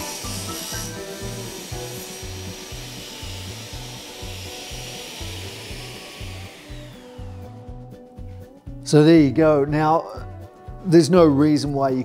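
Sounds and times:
saw blade whine spinning down: 0.0s - 8.4s
table saw running idle: 0.0s - 8.4s
background music with steady beat: 0.0s - 12.0s.

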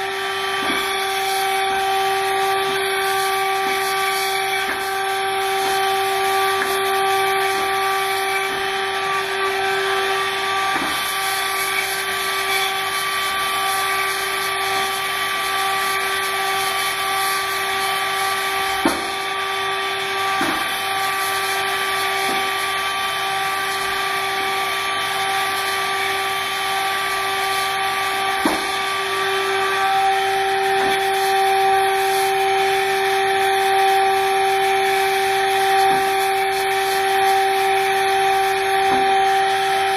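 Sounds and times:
machining spindle whine: 0.0s - 39.9s.

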